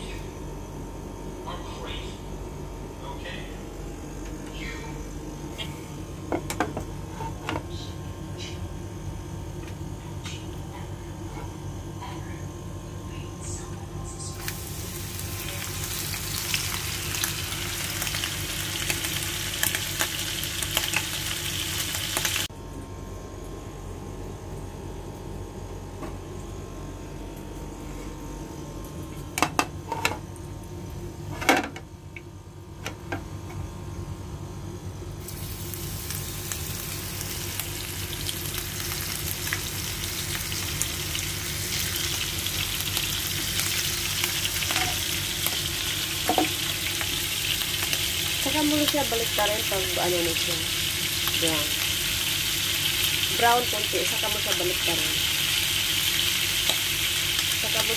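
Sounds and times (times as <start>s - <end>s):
food sizzling in hot oil: 14.4s - 22.5s, 35.2s - 57.9s.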